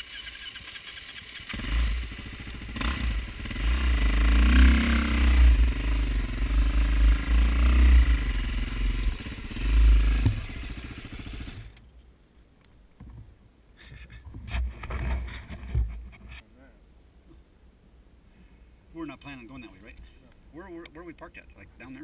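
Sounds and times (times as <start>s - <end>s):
dirt bike engine running: 0.0s - 11.8s.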